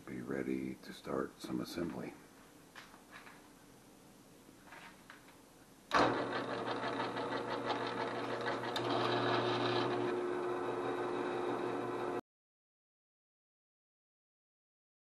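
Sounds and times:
drill grinding into metal: 5.9 - 12.2
drill press motor hum: 5.9 - 12.2.

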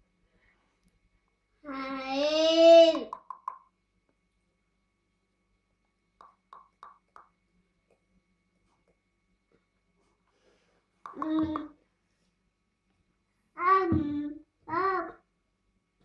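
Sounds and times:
toddler vocal call: 13.6 - 15.2.

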